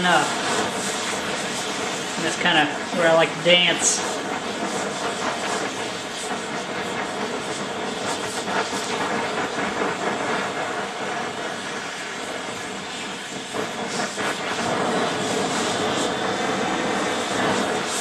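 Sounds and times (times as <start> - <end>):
torch flame hissing: 0.0 - 18.0.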